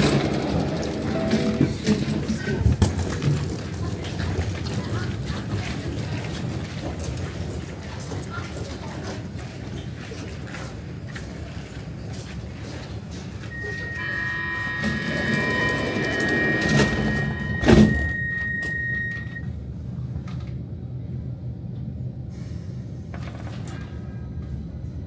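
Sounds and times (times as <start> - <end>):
door-closing warning tones: 0.0 - 2.0, 13.5 - 19.5
train rumbling away: 0.0 - 25.0.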